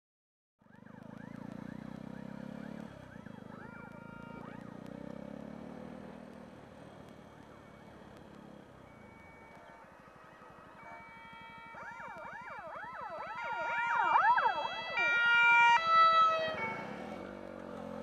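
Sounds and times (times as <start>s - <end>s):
fire engine siren wailing: 0.6s - 18.0s
motorcycle engine running: 0.7s - 8.7s.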